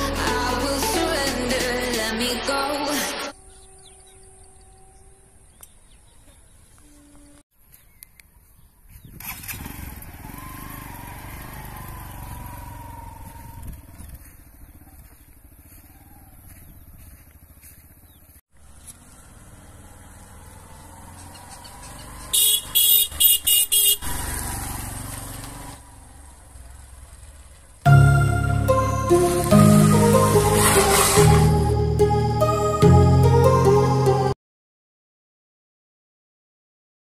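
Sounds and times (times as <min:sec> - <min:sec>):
motorcycle engine running: 0:08.9 - 0:32.0
short horn beeps: 0:22.4 - 0:24.0.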